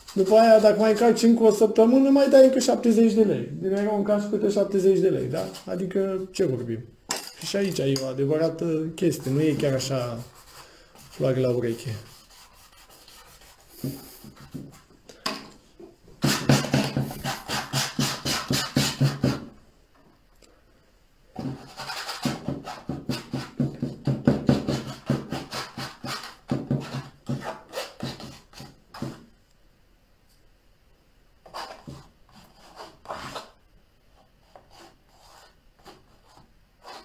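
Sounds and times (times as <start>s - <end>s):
brush scrubbing on canvas: 9.1s - 14.9s.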